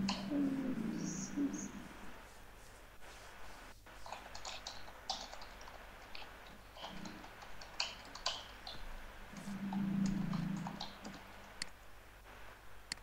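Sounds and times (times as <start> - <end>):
typing on computer keyboard: 4.1 - 8.8.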